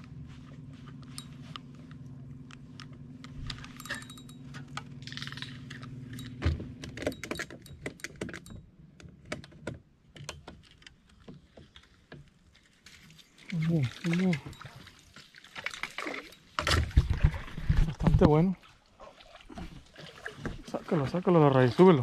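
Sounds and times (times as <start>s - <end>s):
fishing reel clicks and rattles: 2.8s - 8.6s.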